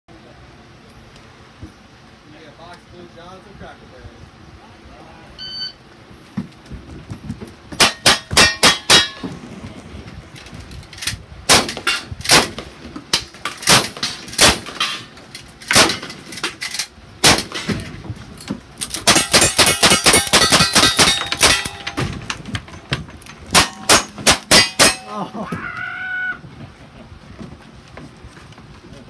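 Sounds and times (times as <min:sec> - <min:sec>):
steel targets clanging: 0:07.8 - 0:09.4, 0:13.2 - 0:25.3
gunshots: 0:11.5 - 0:12.7, 0:13.6 - 0:14.9, 0:15.7 - 0:16.1, 0:17.2 - 0:17.8, 0:19.0 - 0:22.1.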